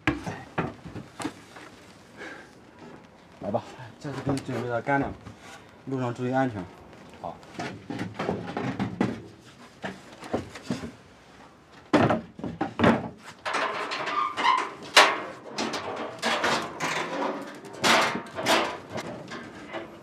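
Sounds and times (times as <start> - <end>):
wooden crate knocking and scraping: 7.5 - 11.0, 11.9 - 13.4.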